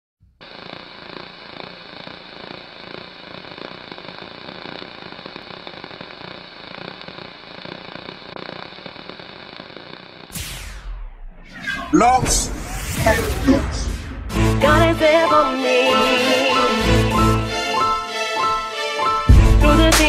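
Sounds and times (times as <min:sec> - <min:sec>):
crackling hiss with pops: 0:00.3 - 0:11.4.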